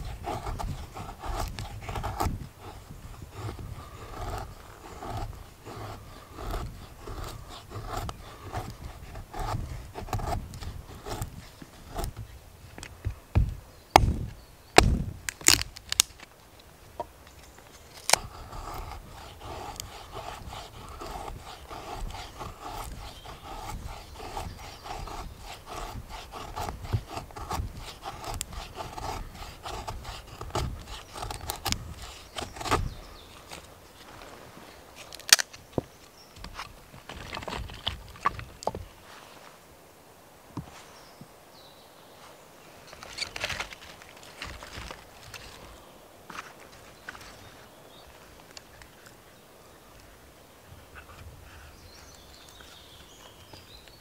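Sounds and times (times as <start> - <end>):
knife scraping wood: 0.0 - 16.3, 17.3 - 39.0, 42.9 - 47.6.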